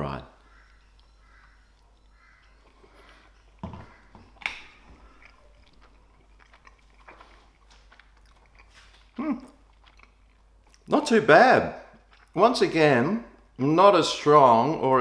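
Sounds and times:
person chewing: 0.4 - 11.0, 11.8 - 12.4
mouth sounds: 9.0 - 9.7.

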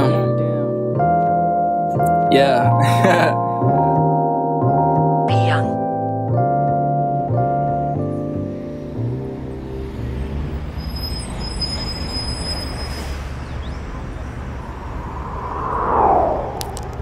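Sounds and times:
piano beat: 0.0 - 9.6
low rumble of city traffic: 5.2 - 17.0
vehicle passing by: 9.0 - 10.9, 13.2 - 17.0.

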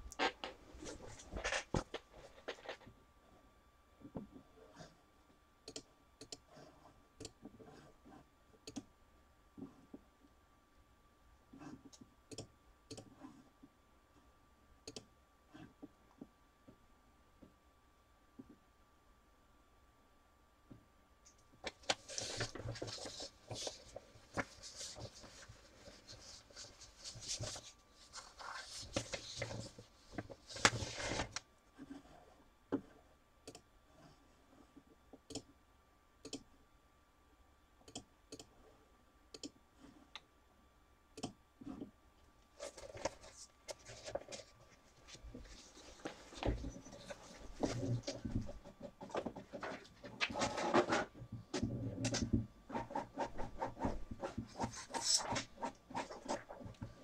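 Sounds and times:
rustling handling noise: 0.0 - 2.9, 21.6 - 31.4, 42.5 - 57.0.

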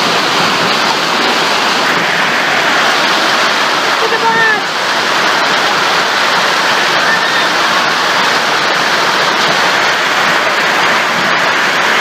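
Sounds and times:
torrential rain and hail: 0.0 - 12.0.

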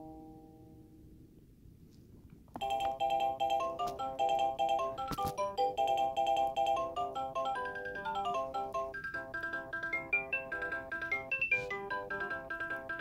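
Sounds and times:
tinny electronic toy melody: 2.6 - 13.0.

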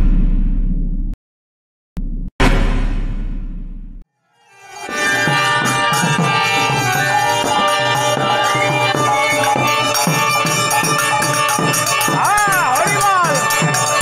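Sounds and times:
violin melody: 4.4 - 14.0
khol drum beating: 5.2 - 14.0.

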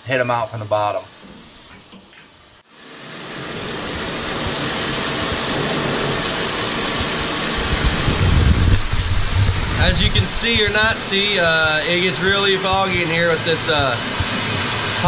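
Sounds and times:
hose spraying hot water on metal: 0.1 - 15.0
low rumble: 7.0 - 11.6.

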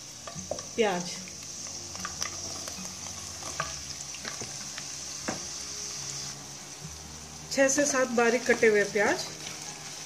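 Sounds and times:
onions sizzling in hot oil: 0.0 - 10.0
light taps of pieces into pan: 3.4 - 5.5.

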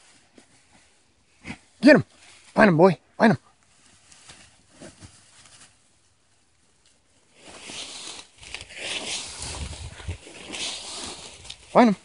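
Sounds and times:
dog rustling through dry brush: 3.7 - 11.8.

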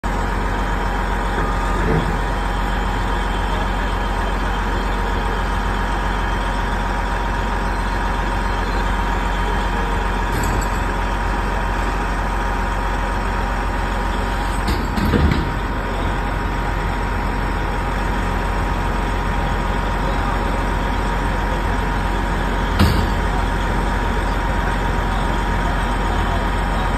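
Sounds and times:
diesel truck engines running: 0.0 - 26.9.

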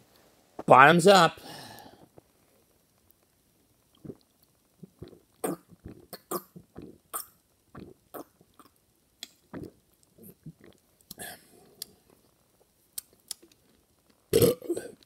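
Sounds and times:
man gulping soda: 3.9 - 12.1, 14.3 - 15.0.

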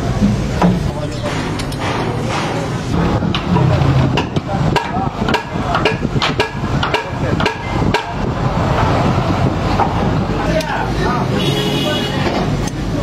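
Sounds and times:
sharp clicks and knocks of hand tools: 3.3 - 8.2.

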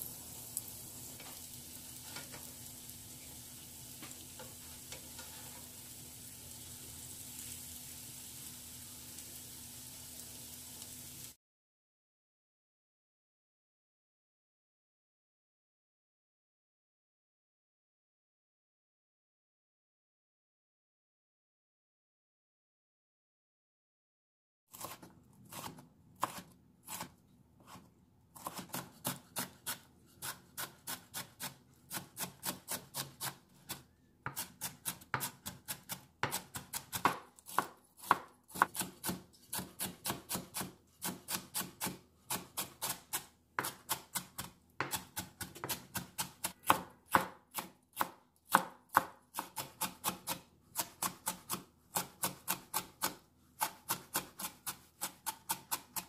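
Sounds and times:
knife chopping on wooden board: 24.7 - 56.0.

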